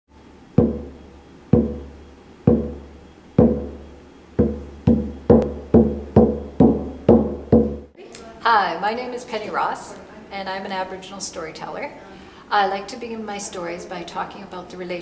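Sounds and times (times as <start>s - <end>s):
hand drum booming: 0.6s - 8.0s.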